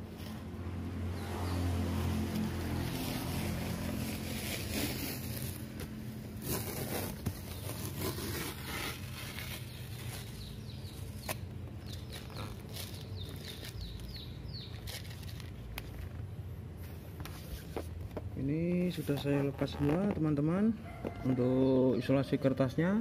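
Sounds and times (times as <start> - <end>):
masking tape peeling off: 2.2 - 16.1.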